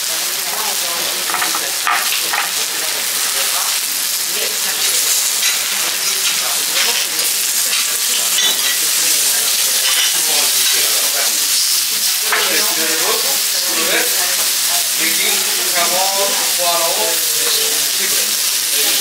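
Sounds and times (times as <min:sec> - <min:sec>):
meat sizzling on a griddle: 0:00.0 - 0:19.0.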